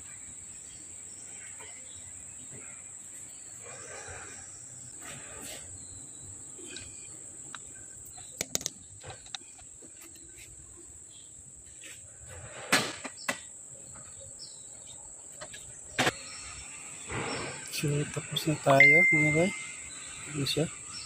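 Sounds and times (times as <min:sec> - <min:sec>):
metal clicks and knocks: 0:08.4 - 0:09.4
high-pitched whine: 0:16.0 - 0:21.0.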